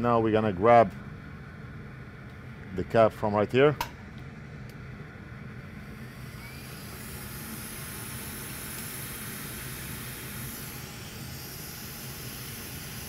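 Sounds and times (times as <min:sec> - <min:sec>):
hot air station hissing: 0:04.8 - 0:13.0.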